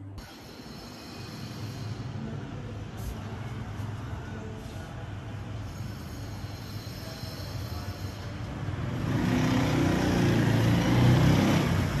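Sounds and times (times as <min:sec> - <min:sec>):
street traffic: 0:00.0 - 0:12.0
motorbike engine: 0:05.6 - 0:12.0.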